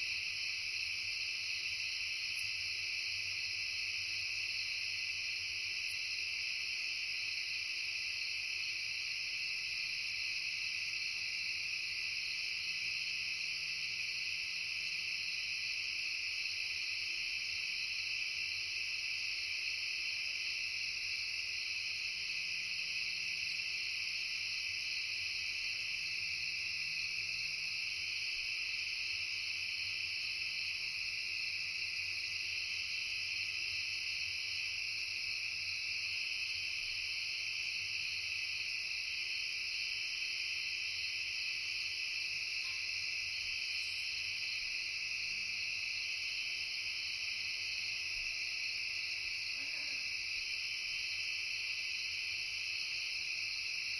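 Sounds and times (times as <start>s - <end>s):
crickets and insects trilling: 0.0s - 53.9s.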